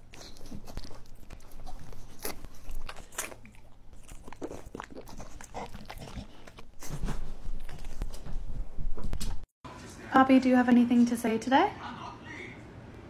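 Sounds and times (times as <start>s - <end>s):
dogs chewing and gulping food: 0.0s - 8.4s.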